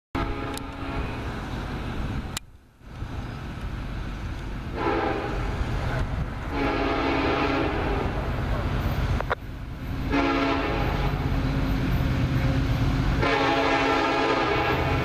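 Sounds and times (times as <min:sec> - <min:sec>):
locomotive air horn blasts: 0:00.2 - 0:01.2, 0:04.7 - 0:05.6, 0:06.5 - 0:08.2, 0:10.1 - 0:11.3, 0:13.2 - 0:15.0
freight cars rumbling: 0:00.2 - 0:15.0.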